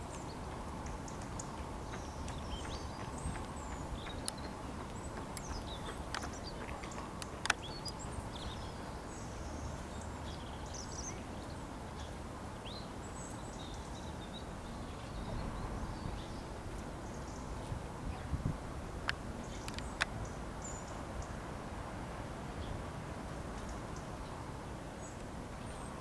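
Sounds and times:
small birds chirping: 0.0s - 18.5s, 19.1s - 21.4s.

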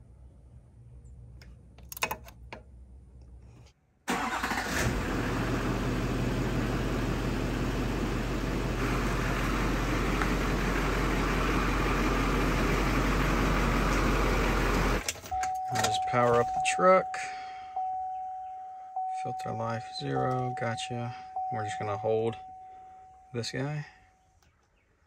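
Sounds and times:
diesel engine idling: 4.1s - 15.0s.

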